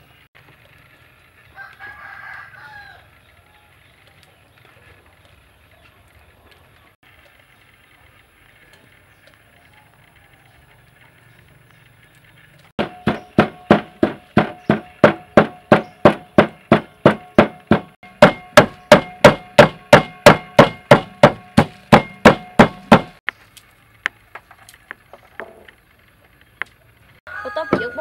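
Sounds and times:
wooden pestle pounding in mortar: 12.8s - 23.2s.

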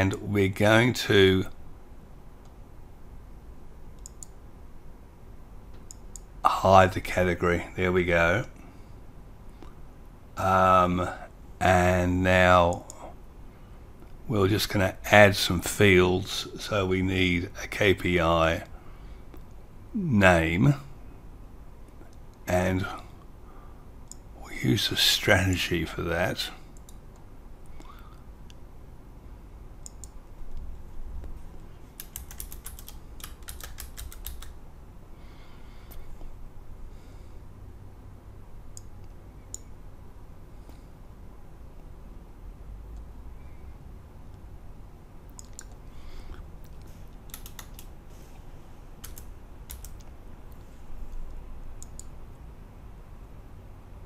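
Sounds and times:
low steady hum: 0.0s - 54.0s
faint clicks: 4.0s - 4.4s, 29.8s - 31.4s, 45.3s - 47.9s, 49.0s - 52.2s
computer keyboard typing: 32.0s - 34.6s, 47.2s - 47.9s, 49.0s - 50.1s.

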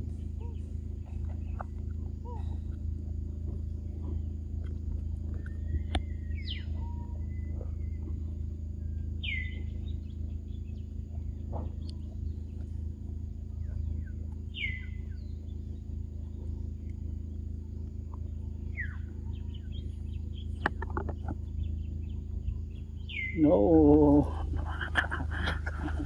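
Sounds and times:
faint bird chirps: 0.0s - 26.0s
steady low background hum: 0.0s - 26.0s
downward-sweeping bird calls: 5.3s - 12.8s, 13.5s - 17.4s, 18.2s - 26.0s.

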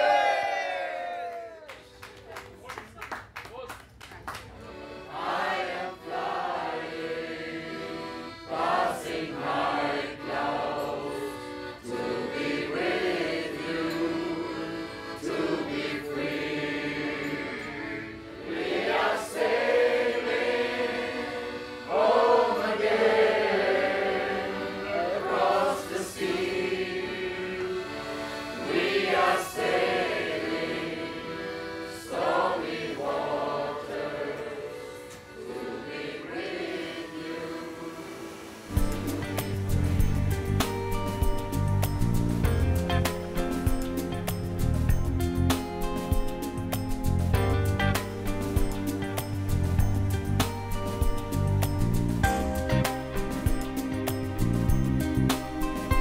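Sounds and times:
choir singing a sea shanty: 4.7s - 44.4s.

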